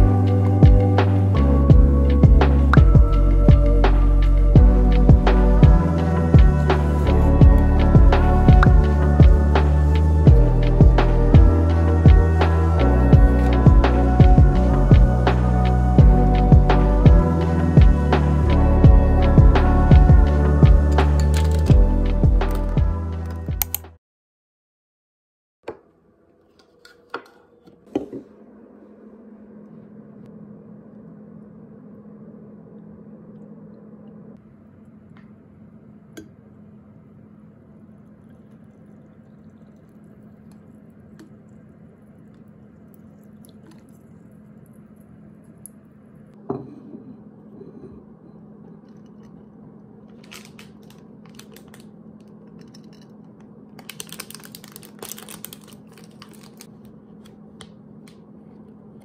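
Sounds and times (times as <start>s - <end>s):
steady low hum: 0.0s - 23.6s, 27.2s - 59.0s
coffee pouring over ice: 38.1s - 45.7s, 53.8s - 56.7s
plastic wrapper crinkling: 50.1s - 53.0s, 53.8s - 57.3s.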